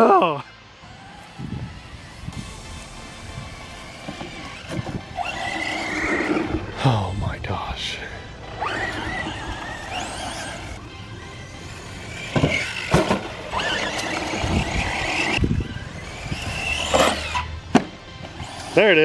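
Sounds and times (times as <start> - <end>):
electric motor whining: 0.8 - 6.9, 8.2 - 19.0
toy truck thumping on ramp: 12.3 - 14.3.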